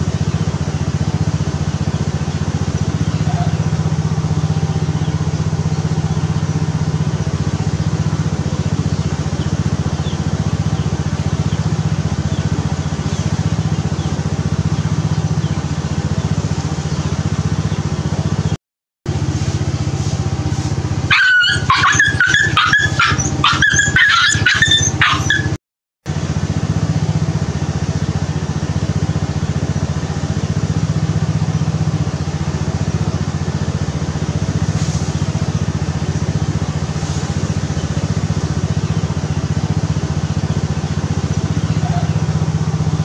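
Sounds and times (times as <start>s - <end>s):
high-pitched animal calls: 3.1s - 3.8s, 21.1s - 25.6s, 41.7s - 42.3s.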